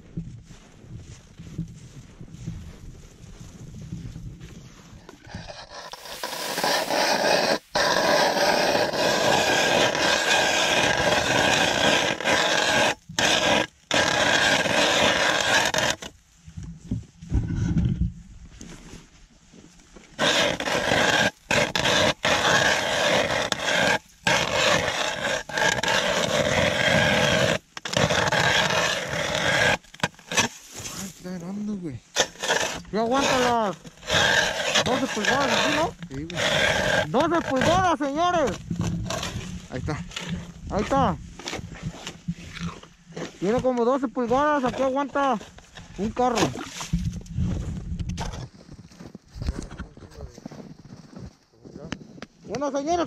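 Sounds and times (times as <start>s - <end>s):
ice auger grinding through ice: 5.2s - 16.1s, 20.1s - 31.3s, 32.1s - 48.5s.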